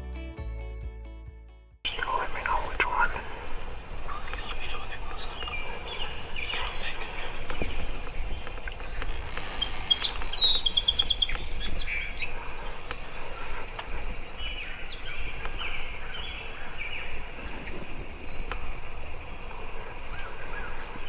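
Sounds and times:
outdoor background noise: 1.9s - 21.0s
small birds chirping: 1.9s - 21.0s.

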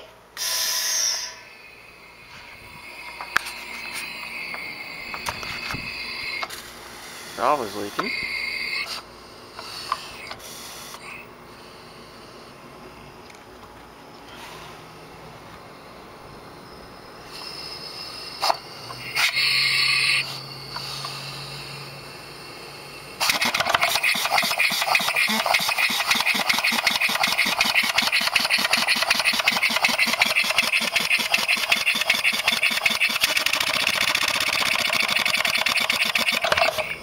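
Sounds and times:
air engine chuffing: 7.3s - 11.2s, 17.0s - 37.0s.

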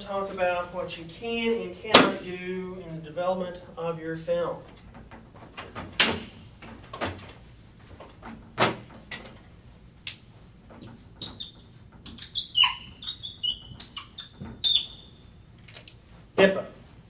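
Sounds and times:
marker squeaking on a board: 10.8s - 15.2s.

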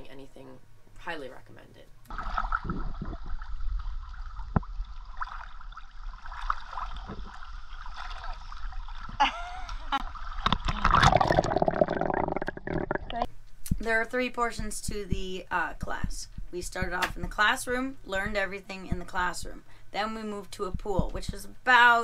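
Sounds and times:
pool water sloshing and splashing: 2.1s - 9.2s, 9.9s - 11.7s.

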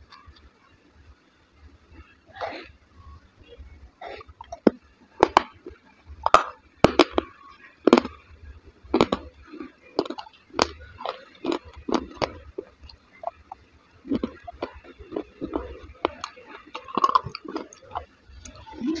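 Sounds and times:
wet chewing with lip smacks: 8.9s - 19.0s.

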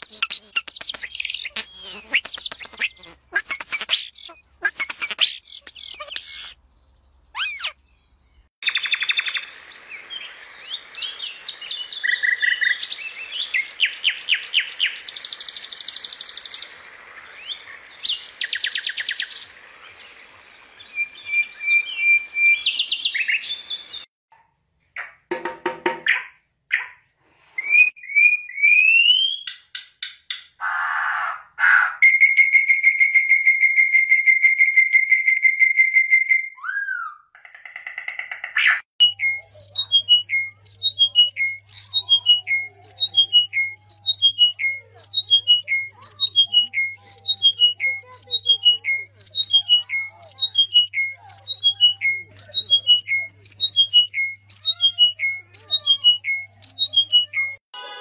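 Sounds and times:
songbird singing whistled notes: 0.0s - 24.1s, 39.0s - 57.6s
oriole singing whistled trill: 39.0s - 57.6s.

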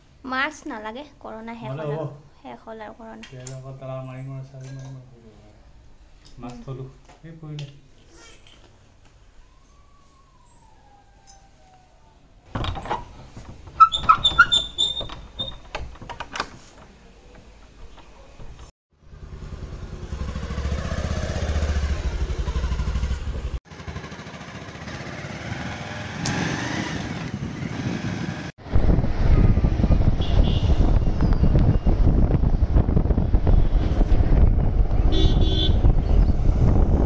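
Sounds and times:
knocks and metallic clatter: 12.5s - 18.7s
motorcycle engine running: 19.0s - 28.5s
wind noise on microphone: 27.1s - 37.0s.

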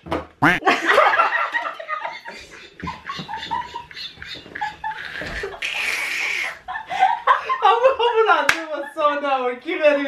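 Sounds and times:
people laughing: 0.6s - 9.0s.

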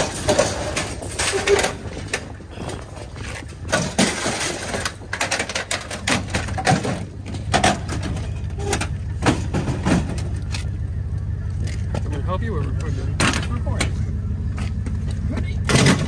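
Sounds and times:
metal knocking and scraping on pavement: 0.0s - 16.0s
steady low hum: 0.0s - 16.0s.

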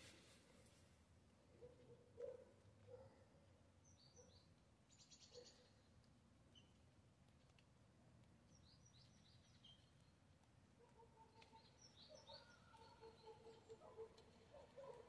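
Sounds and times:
faint bird chirping: 3.8s - 6.8s, 8.4s - 10.2s, 11.1s - 15.0s.

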